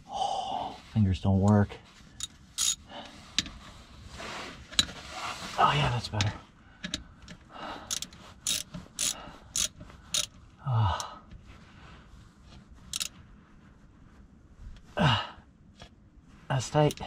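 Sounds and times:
ratchet wrench clicking: 2.2 - 2.8, 7.9 - 10.3, 12.9 - 13.1
low grunts of effort: 10.6 - 11.3, 15.0 - 15.5.

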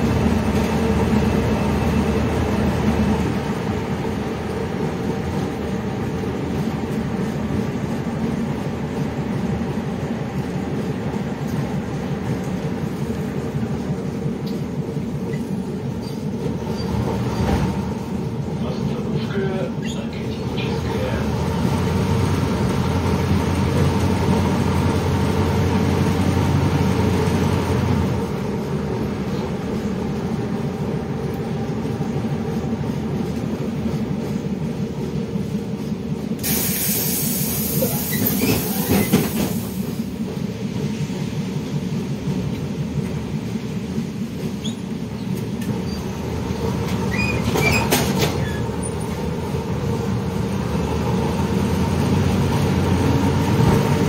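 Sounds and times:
bus engine humming: 0.0 - 54.0
loud hiss: 36.4 - 40.1.

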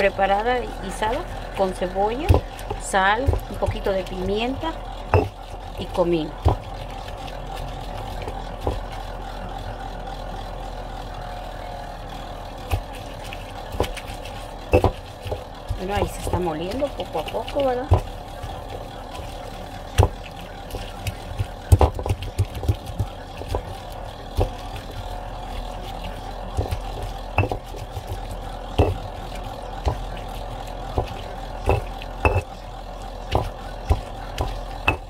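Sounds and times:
low hum: 0.0 - 35.0
stone pestle knocking and grinding: 1.2 - 6.7, 14.7 - 17.2, 19.9 - 20.2, 20.8 - 23.8, 24.4 - 25.0, 26.6 - 29.2, 29.8 - 30.2, 30.9 - 32.5, 33.2 - 35.0.

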